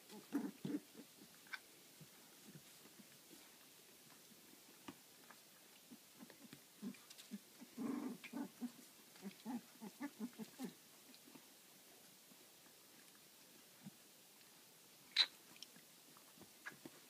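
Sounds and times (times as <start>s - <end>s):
puppies making short low sounds: 0.0s - 1.7s, 5.8s - 11.4s.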